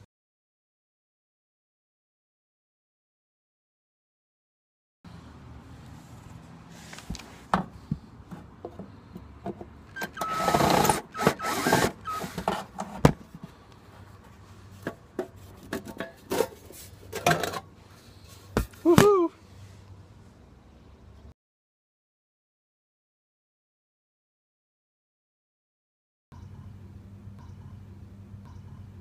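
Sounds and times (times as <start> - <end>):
short squeak: 9.9 - 12.5
cordless drill running: 10.2 - 12.3.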